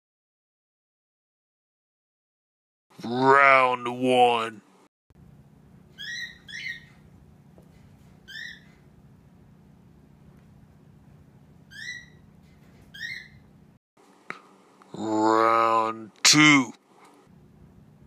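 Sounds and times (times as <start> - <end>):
faint low hum: 5.2 - 18.0
cats squeaking: 6.0 - 7.0, 8.2 - 8.8, 11.7 - 13.5.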